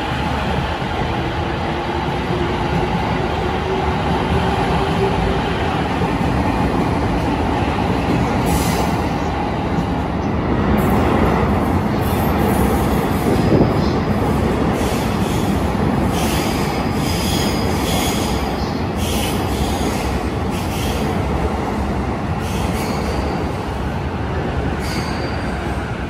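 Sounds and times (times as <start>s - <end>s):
train wheel squeal: 14.7s - 21.1s, 22.4s - 23.6s, 24.8s - 25.9s.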